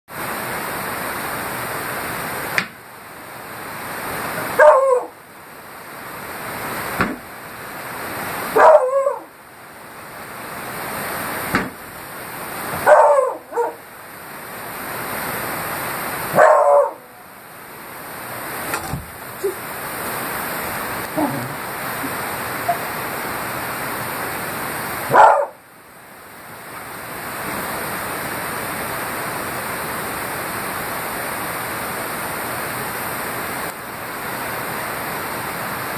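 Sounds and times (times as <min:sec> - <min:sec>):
dog barking: 0:04.5 - 0:05.2, 0:08.5 - 0:09.3, 0:12.8 - 0:13.8, 0:16.3 - 0:17.2, 0:25.1 - 0:25.6.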